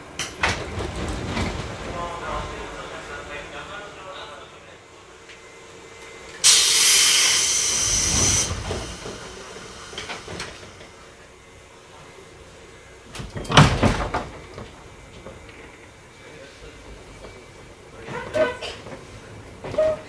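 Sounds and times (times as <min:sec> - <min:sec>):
compressed air hissing: 0:06.4 - 0:11.1.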